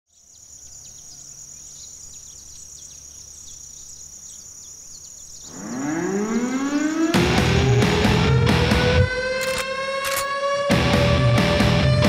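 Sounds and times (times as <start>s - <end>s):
bird chirps: 0.1s - 7.2s
insects buzzing: 0.1s - 10.7s
rising musical tone: 5.4s - 12.0s.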